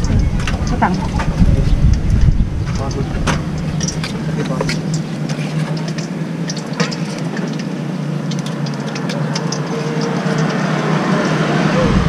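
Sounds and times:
tongs and skewers clinking: 0.0 - 11.4
engine idling hum: 0.0 - 12.0.

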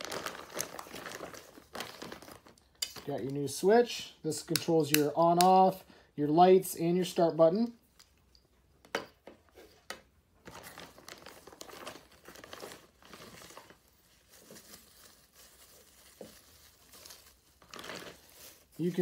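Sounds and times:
plastic bags crinkling: 0.0 - 3.4, 10.4 - 19.0.

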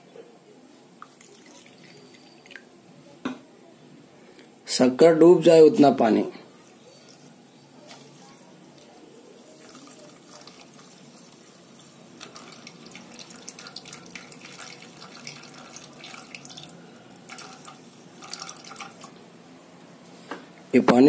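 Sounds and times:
water trickling onto sugar: 1.0 - 2.7, 6.6 - 19.2.

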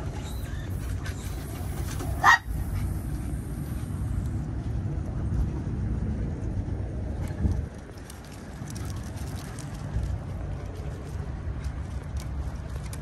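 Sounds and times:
low rumble: 0.0 - 13.0
dog yipping: 2.1 - 2.5.

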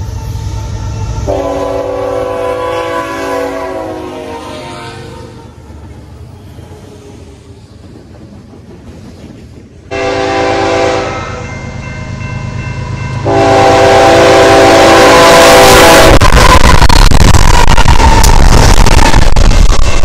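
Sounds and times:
locomotive horn blasts: 0.0 - 5.3, 9.9 - 11.5, 13.2 - 17.2
locomotive engines and wheels roaring: 0.0 - 20.0.

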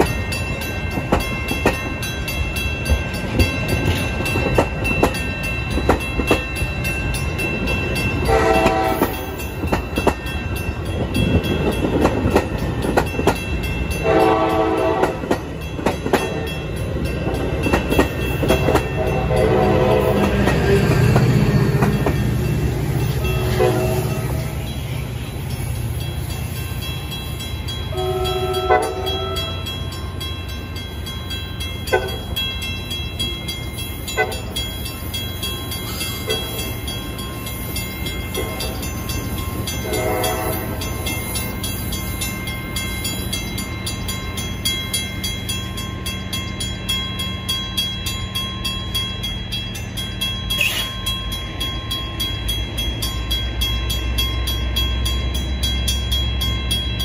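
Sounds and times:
train rumbling: 0.0 - 57.0
train horn blast: 8.2 - 9.2, 14.0 - 15.3, 18.9 - 20.8, 23.2 - 24.4, 27.9 - 29.7, 39.8 - 40.8.

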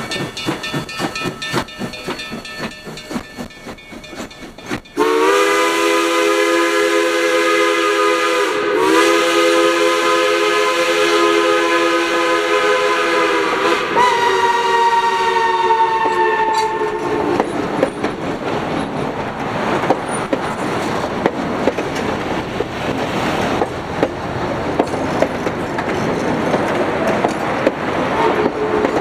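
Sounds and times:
steam locomotive exhaust beats: 0.0 - 29.0
steam whistle chord: 5.0 - 17.4.

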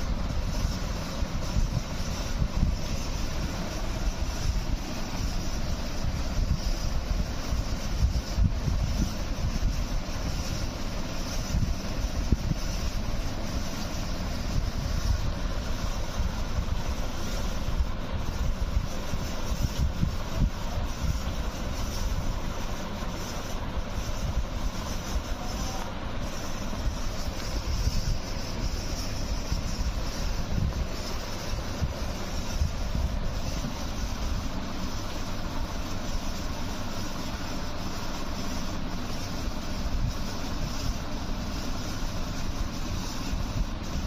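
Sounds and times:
wind buffeting microphone: 0.1 - 10.6, 17.6 - 22.3, 26.7 - 34.5.

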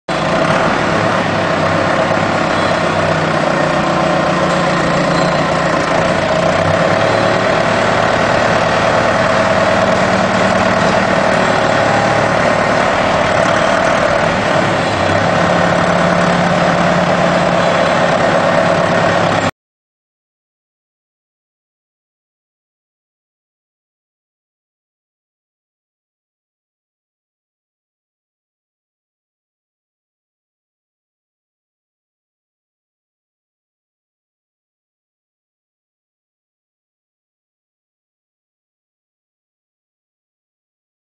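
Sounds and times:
forklift engine running: 0.1 - 19.5.

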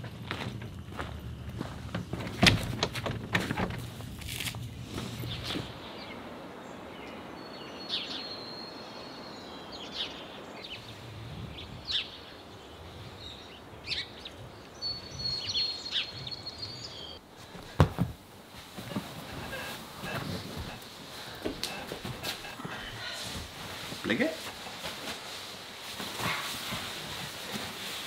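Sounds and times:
small birds chirping: 4.9 - 17.2
steady hiss: 17.2 - 28.0.

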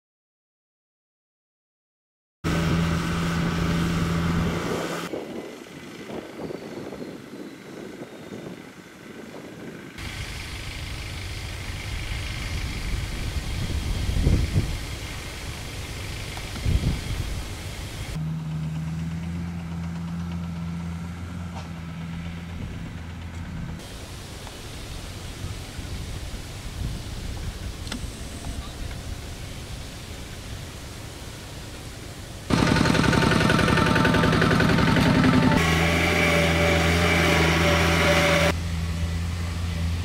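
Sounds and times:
loud engine drone: 2.5 - 25.3, 32.4 - 40.0
small engine idling unevenly: 8.7 - 25.8, 31.8 - 40.0.

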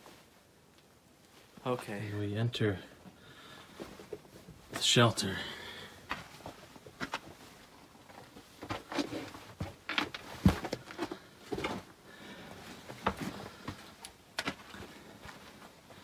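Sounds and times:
footsteps on rocky floor: 8.0 - 12.0, 12.8 - 15.6.

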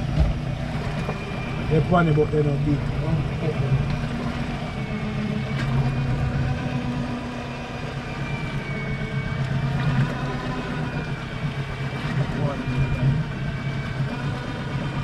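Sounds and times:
boat engine running: 0.0 - 15.0
faint high whine: 0.0 - 15.0.

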